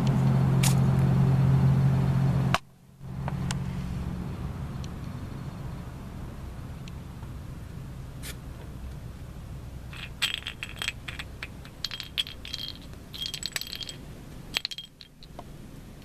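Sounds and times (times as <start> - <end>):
bell jingling in plastic ball: 9.9 - 15.3.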